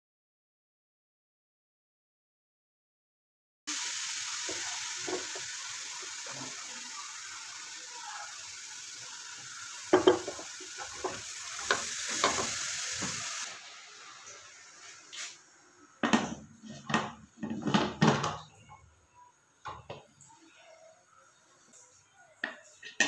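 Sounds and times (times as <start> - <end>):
knocks on pot: 10.0 - 10.5.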